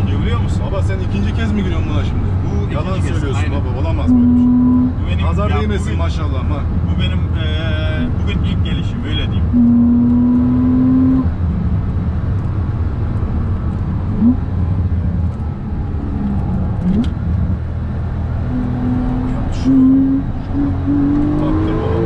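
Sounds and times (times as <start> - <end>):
car engine running: 0.0 - 22.0
steady low rumble: 11.2 - 20.8.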